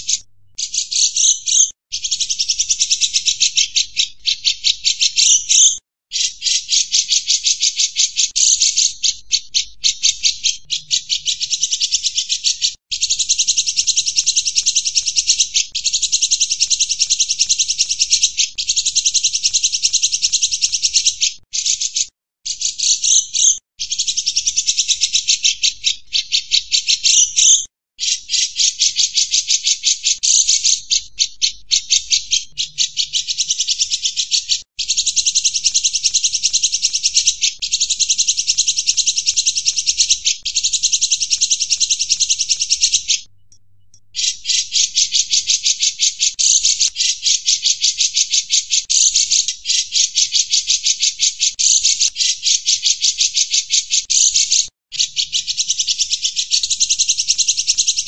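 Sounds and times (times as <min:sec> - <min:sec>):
bulbul singing rapid chatter: 0:00.0 - 0:25.7, 0:28.3 - 0:43.3.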